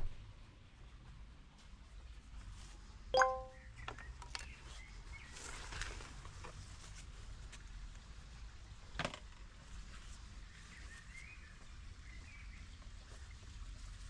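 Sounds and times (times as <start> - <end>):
bird chirping faintly: 3.2 - 3.6.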